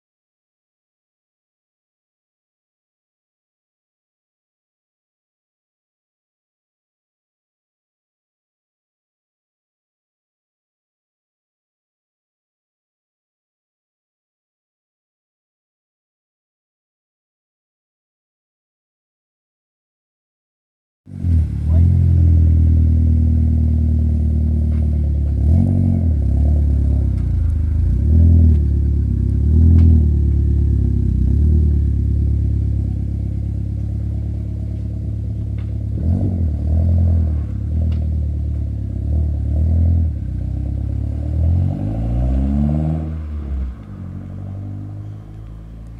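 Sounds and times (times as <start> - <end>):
car driving off: 21.1 - 45.9
turbocharged car engine running: 21.2 - 36.7
engine throttle blips: 43.1 - 45.9.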